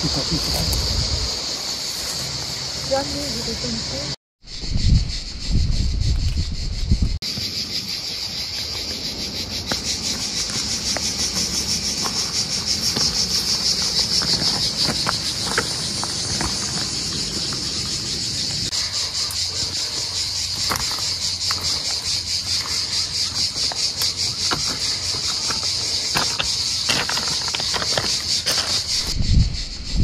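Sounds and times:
wind rumble on microphone: 0:00.0 - 0:01.5, 0:04.4 - 0:07.2, 0:28.5 - 0:30.0
cicadas buzzing: 0:00.0 - 0:30.0
scree shifting underfoot: 0:09.6 - 0:18.7, 0:19.4 - 0:29.2.

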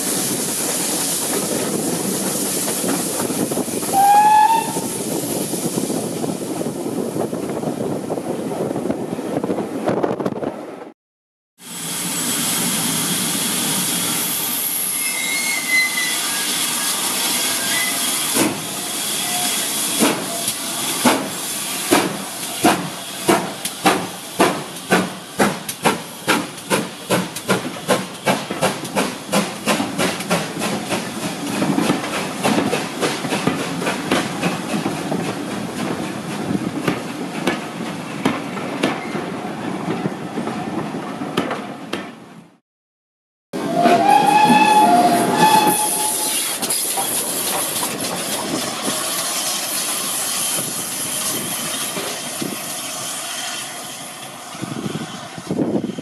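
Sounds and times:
hissing steam: 0:00.0 - 0:06.7, 0:11.6 - 0:35.5, 0:44.0 - 0:56.0
steam train running: 0:00.0 - 0:09.5, 0:11.6 - 0:41.7, 0:43.6 - 0:56.0
short rising train whistle: 0:03.9 - 0:05.0, 0:14.6 - 0:20.6, 0:43.6 - 0:46.6.

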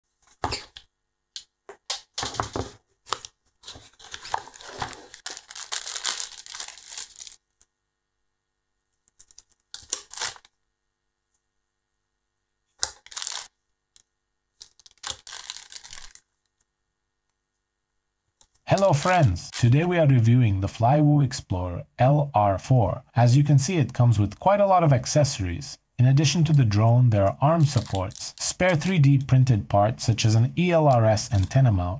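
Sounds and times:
plastic bags crinkling: 0:03.2 - 0:07.4, 0:09.2 - 0:10.5, 0:12.8 - 0:13.5, 0:14.6 - 0:16.4, 0:27.6 - 0:28.4.

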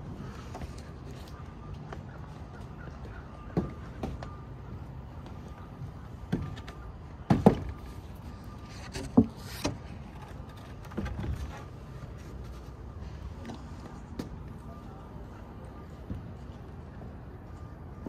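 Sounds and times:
knocks and thumps on wooden lumber: 0:07.3 - 0:07.8.

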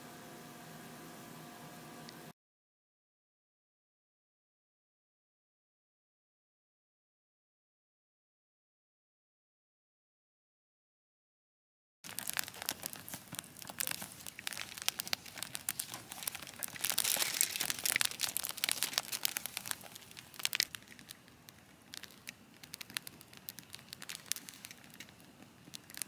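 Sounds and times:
crinkling and crackling: 0:12.0 - 0:26.0.

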